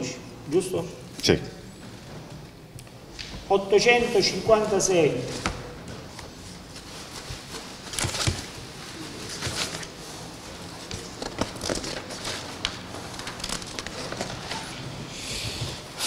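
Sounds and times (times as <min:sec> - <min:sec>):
paper rustling: 0:05.2 - 0:14.8.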